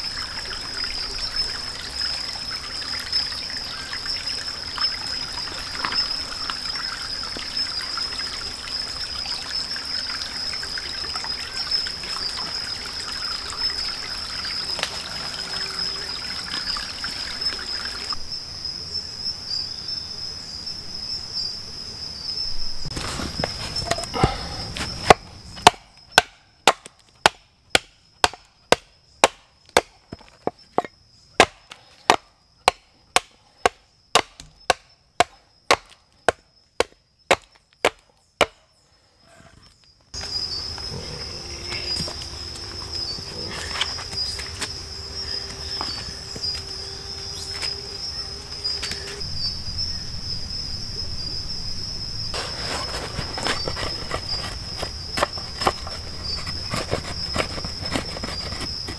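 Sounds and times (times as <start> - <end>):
stream trickling over stones: 0.0 - 18.3
high insect drone: 0.0 - 58.9
hatchet chopping wood: 25.1 - 38.6.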